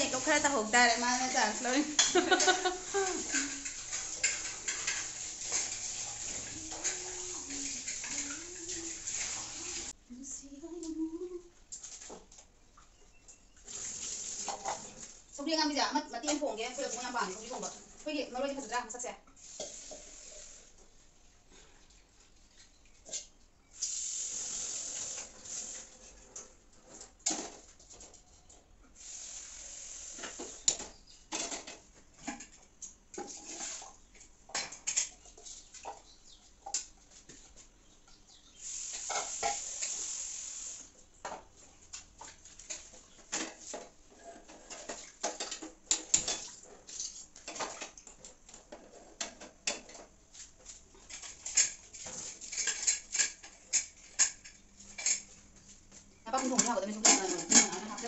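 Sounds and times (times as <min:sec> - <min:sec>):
tap water running: 0:00.0 - 0:10.0, 0:13.6 - 0:21.0, 0:23.7 - 0:26.4, 0:28.8 - 0:31.5, 0:38.6 - 0:43.0
dishes clattering: 0:01.8 - 0:09.9, 0:30.4 - 0:32.6, 0:34.5 - 0:36.9, 0:39.0 - 0:39.7, 0:42.6 - 0:46.8, 0:47.4 - 0:50.1, 0:51.0 - 0:55.4, 0:56.4 - 0:58.0.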